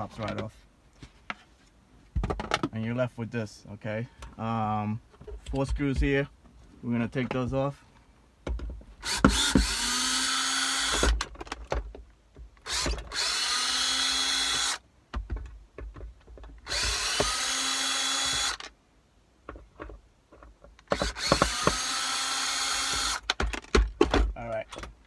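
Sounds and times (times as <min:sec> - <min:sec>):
cordless drill whine: 0:09.0 - 0:11.2, 0:12.6 - 0:14.8, 0:16.6 - 0:18.7, 0:20.9 - 0:23.2.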